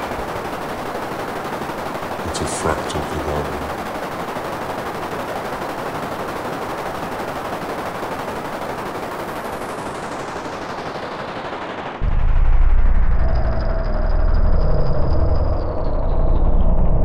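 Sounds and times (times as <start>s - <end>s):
dense electronic crackling: 12.0s - 17.0s
loud low drone: 12.0s - 17.0s.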